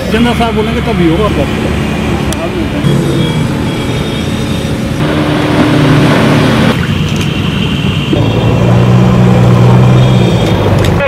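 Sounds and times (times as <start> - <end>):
outboard motor running: 5.0 - 10.9.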